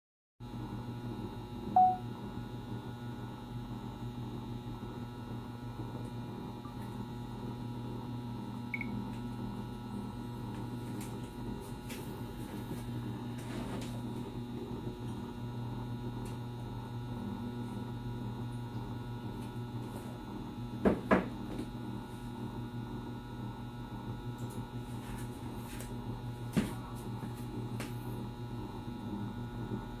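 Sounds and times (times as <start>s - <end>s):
low electrical hum: 0.5s - 30.0s
short loud beep: 1.8s - 2.0s.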